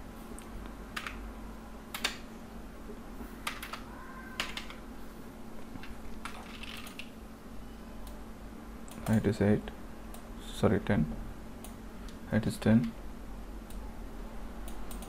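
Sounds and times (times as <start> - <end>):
faint steady hum: 0.0 - 15.0
keyboard and mouse clicks: 4.4 - 4.8, 14.7 - 15.0.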